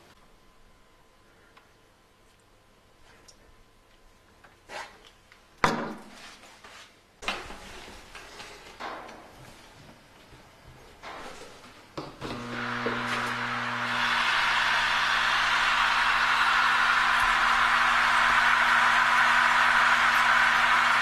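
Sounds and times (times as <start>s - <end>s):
air pump humming: 12.3s - 21.0s.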